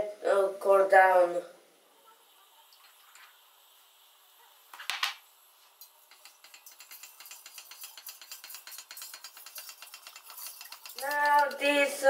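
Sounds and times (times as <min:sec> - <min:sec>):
spoon stirring in saucepan: 0:05.6 - 0:12.0.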